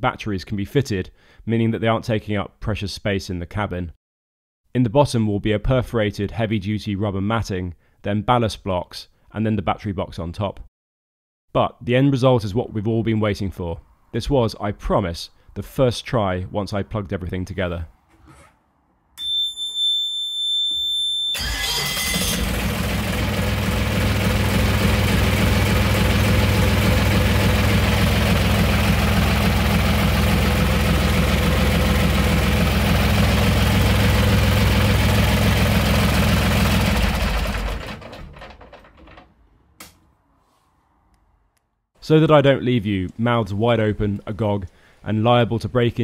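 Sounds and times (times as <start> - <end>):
warning buzzer high tone: 19.2 - 21.4
diesel engine cranking and running: 21.4 - 39.3.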